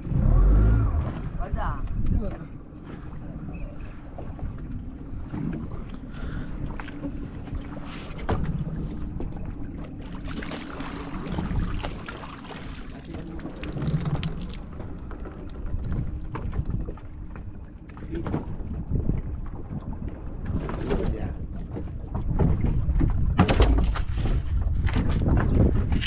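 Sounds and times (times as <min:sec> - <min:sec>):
wind on microphone: 0:00.0 - 0:12.2, 0:13.0 - 0:26.0
boat engine running: 0:00.0 - 0:26.0
water rushing: 0:07.8 - 0:18.6
knocks on boat: 0:08.2 - 0:09.4, 0:20.5 - 0:26.0.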